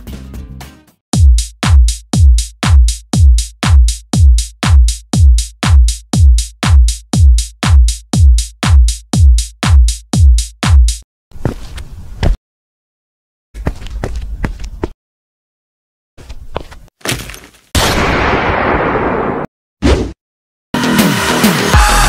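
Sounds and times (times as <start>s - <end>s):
drum machine kick: 1.2s - 11.0s.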